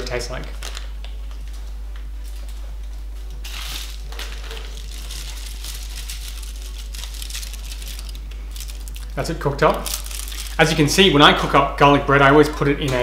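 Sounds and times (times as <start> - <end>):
steady low hum: 0.0 - 13.0
wrapping crinkling: 0.4 - 1.6, 3.4 - 11.1.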